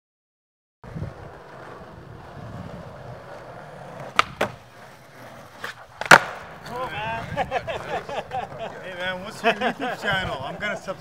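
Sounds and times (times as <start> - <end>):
skateboard wheels rolling on pavement: 0.8 - 11.0
skateboard clacking on ledge: 4.0 - 4.6, 5.6 - 7.0
skateboard landing slap: 4.0 - 4.6, 5.6 - 6.9.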